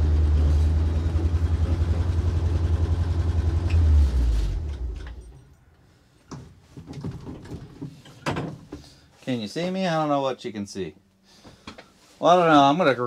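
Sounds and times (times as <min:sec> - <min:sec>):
truck engine throbbing: 0:00.0 - 0:05.0.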